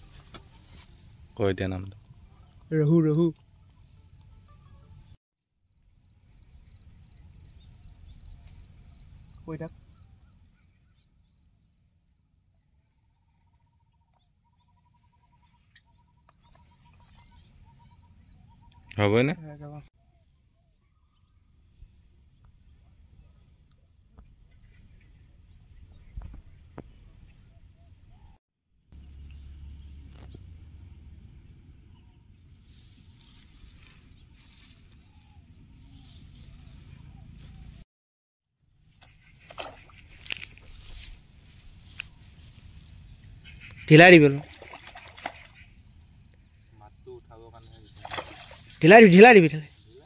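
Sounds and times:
insect drone: 3.4 - 10.4, 29.0 - 37.2
faint bird chirps: 6.0 - 22.0, 41.8 - 48.9.

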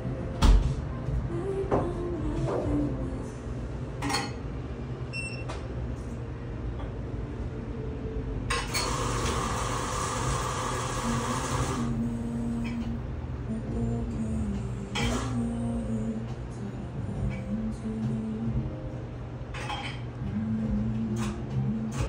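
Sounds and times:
dishes and cups clinking: 19.6 - 20.0.

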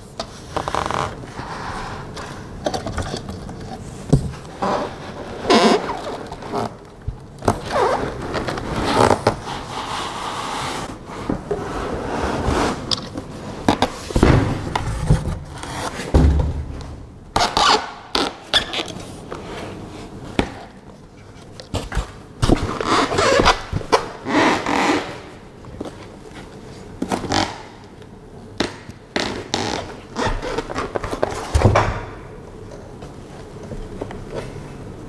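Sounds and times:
cardboard and foam scraping: 7.6 - 16.3.

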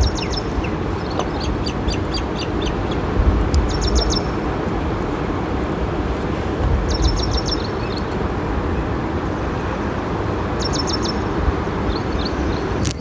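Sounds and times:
small bird chirping: 0.0 - 4.4, 6.9 - 8.2, 10.6 - 11.3, 11.9 - 12.8
flowing river: 0.0 - 13.0
wind buffeting microphone: 0.0 - 13.0.

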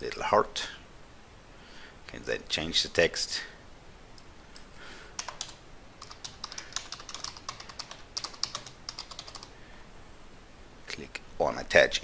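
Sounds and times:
computer keyboard typing: 5.2 - 9.5.

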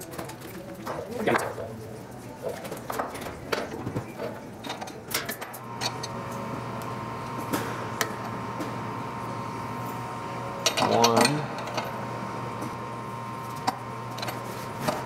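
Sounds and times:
steady hum with high whine: 5.1 - 15.0.

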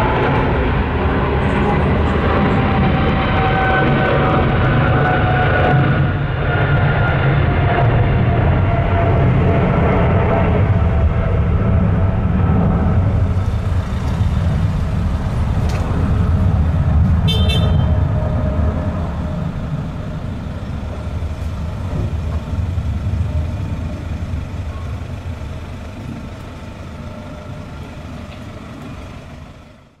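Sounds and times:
jet engines deep rumble: 0.0 - 30.0.

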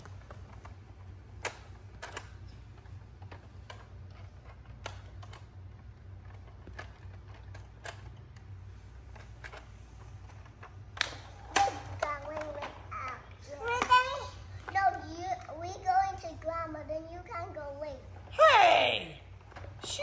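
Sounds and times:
plastic toys clicking and tapping: 0.0 - 17.6, 19.4 - 20.0
low steady hum: 0.0 - 20.0.

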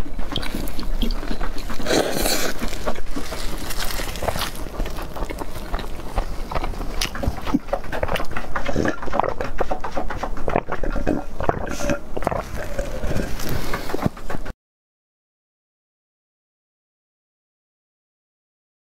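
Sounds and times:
chewing with wet clicks: 0.0 - 14.5
person gulping and slurping: 0.0 - 14.5.

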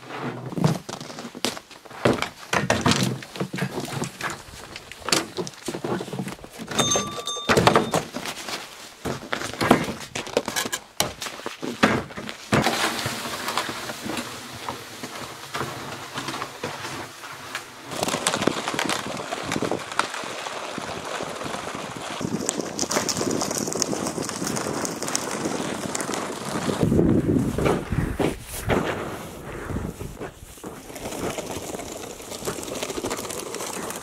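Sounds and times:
sled scraping over snow: 0.0 - 34.0
gear knocking in plastic sled: 0.2 - 34.0
footsteps crunching in snow: 12.3 - 34.0.

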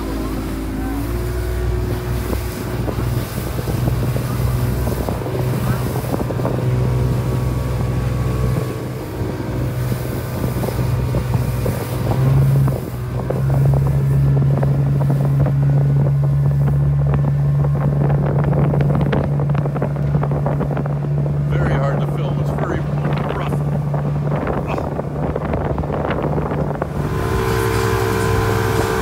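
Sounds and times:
speedboat engine droning: 0.0 - 29.0
wind buffeting microphone: 0.0 - 29.0.

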